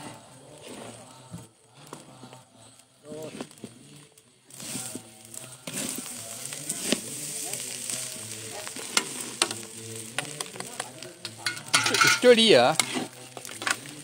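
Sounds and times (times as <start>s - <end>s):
spatulas scraping a wok: 0.0s - 1.1s, 4.5s - 14.0s
steady sizzle: 0.0s - 14.0s.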